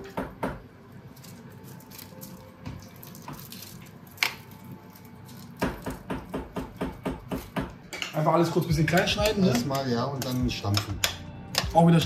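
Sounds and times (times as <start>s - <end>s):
wet squishing of onions: 1.0s - 6.1s.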